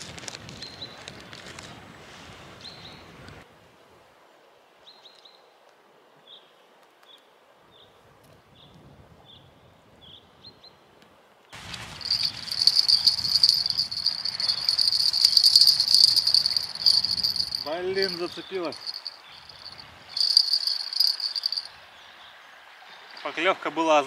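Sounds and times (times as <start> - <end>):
faint high tinkles: 11.9 - 21.7
fishing reel whirring: 12.0 - 17.7, 18.8 - 21.7.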